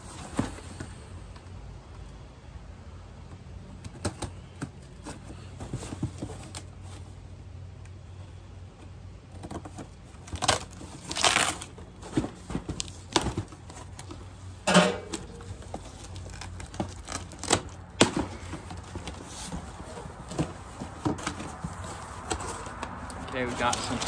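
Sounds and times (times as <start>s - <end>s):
cardboard and tape tearing: 9.4s - 14.1s, 15.2s - 24.0s.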